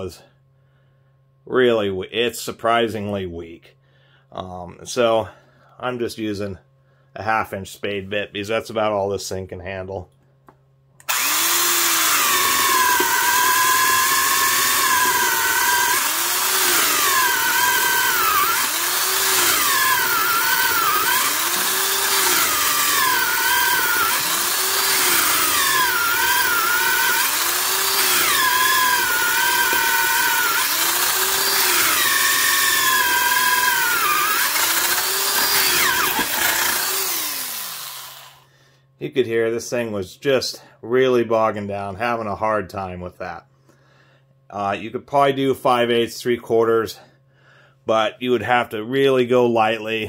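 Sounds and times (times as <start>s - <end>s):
drill boring into wood: 11.0s - 38.4s.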